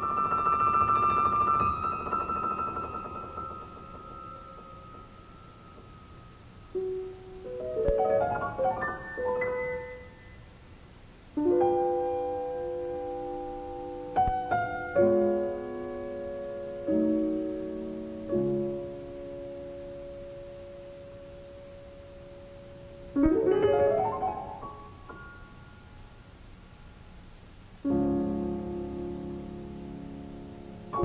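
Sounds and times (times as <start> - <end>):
solo piano chords: 0.0 - 10.6, 11.3 - 26.2, 27.8 - 31.0.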